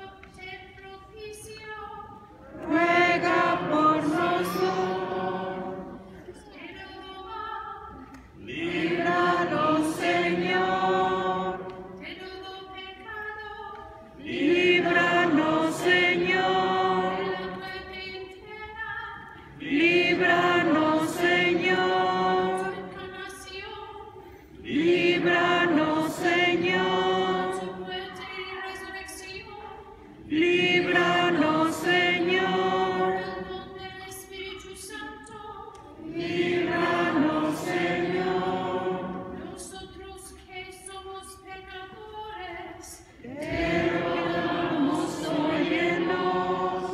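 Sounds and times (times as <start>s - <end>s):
congregation singing chant: 2.1s - 40.0s, 42.6s - 46.9s.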